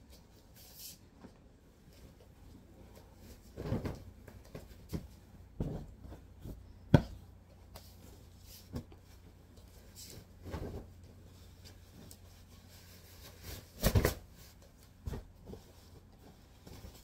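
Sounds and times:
soft thumps of pillows on mattress: 0:03.6 - 0:07.1.

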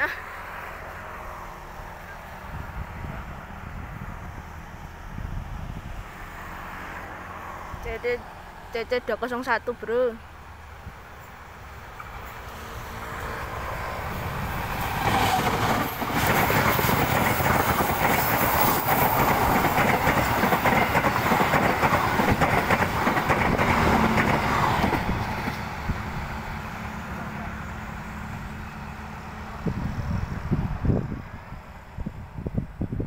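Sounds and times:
diesel locomotive passing: 0:00.0 - 0:33.0
train wheels clattering on rails: 0:14.4 - 0:25.9.

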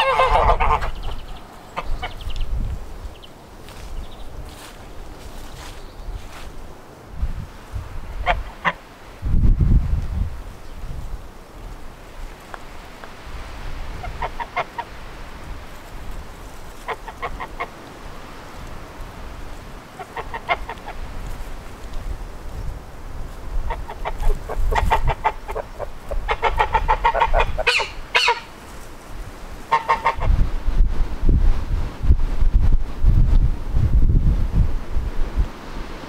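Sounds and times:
geese honking: 0:00.0 - 0:02.4, 0:08.2 - 0:08.8, 0:13.9 - 0:15.2, 0:16.7 - 0:17.9, 0:19.9 - 0:21.1, 0:23.6 - 0:28.6, 0:29.6 - 0:30.4
wind rumble on microphone: 0:00.0 - 0:36.0.

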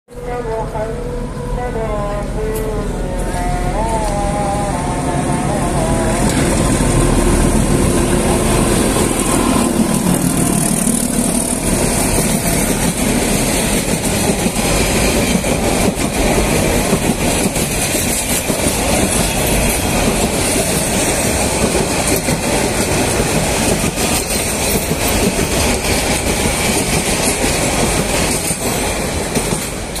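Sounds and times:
diesel locomotive engine: 0:00.1 - 0:30.0
train wheels clacking on rail joints: 0:07.8 - 0:30.0.

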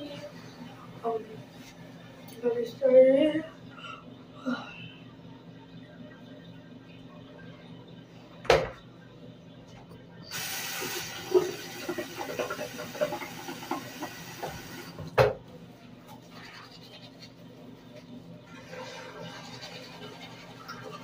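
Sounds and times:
sink tap running: 0:10.3 - 0:15.1.

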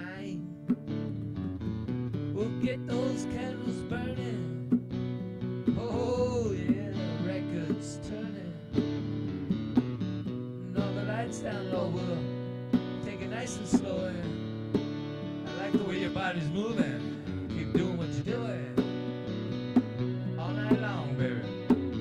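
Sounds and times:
acoustic guitar strumming: 0:00.0 - 0:22.0
hand drum slaps: 0:04.6 - 0:05.1, 0:09.6 - 0:10.0, 0:19.7 - 0:20.1, 0:20.7 - 0:22.0.

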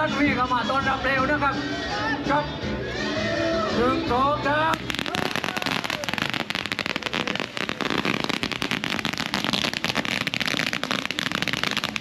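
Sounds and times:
firecrackers cracking: 0:04.7 - 0:12.0.

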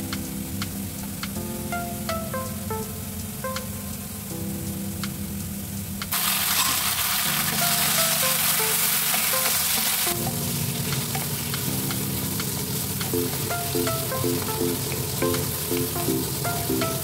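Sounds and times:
food sizzling in oil: 0:06.1 - 0:17.0.

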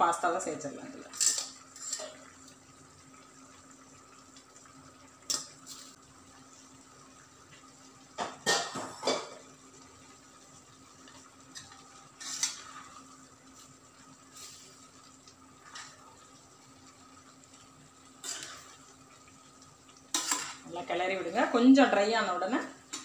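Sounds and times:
faint steady hum: 0:00.0 - 0:23.0
spoon scraping and clinking pan: 0:01.2 - 0:02.2, 0:20.1 - 0:20.6.

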